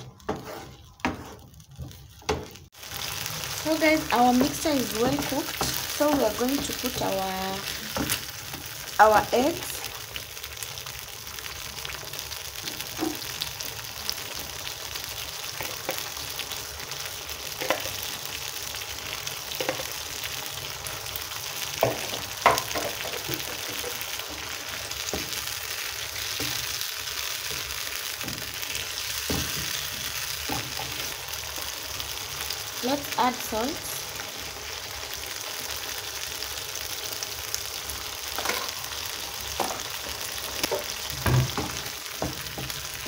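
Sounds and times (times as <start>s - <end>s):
spoon scraping a pan: 0.0s - 2.6s
sauce sizzling in a frying pan: 0.0s - 43.0s.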